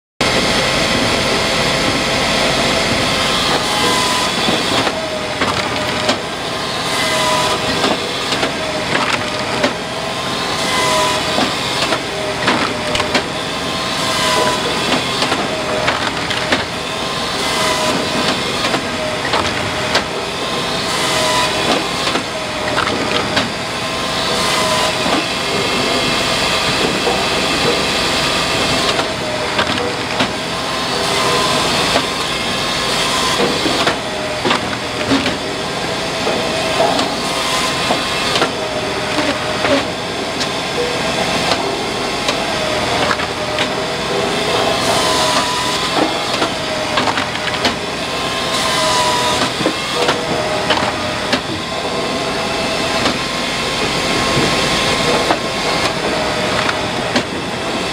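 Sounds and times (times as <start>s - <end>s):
chainsaw cutting logs: 0.2s - 57.9s
firewood processor running: 0.2s - 57.9s
split wood knocking onto conveyor: 3.4s - 6.4s, 7.1s - 9.9s, 10.6s - 13.4s, 14.1s - 16.9s, 17.5s - 20.2s, 21.0s - 23.6s, 28.7s - 30.5s, 33.2s - 35.5s, 41.5s - 43.8s, 44.4s - 47.9s.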